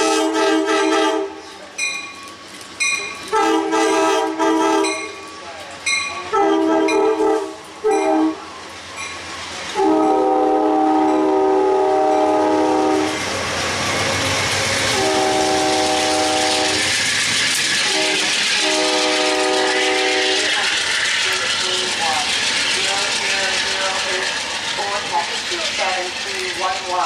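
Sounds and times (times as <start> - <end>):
train horn blasts: 0.0 - 1.4, 3.3 - 5.2, 6.2 - 8.4, 9.8 - 13.2, 14.9 - 16.9, 17.9 - 21.6
diesel locomotive engine: 0.0 - 27.0
train wheels rumbling: 0.0 - 27.0.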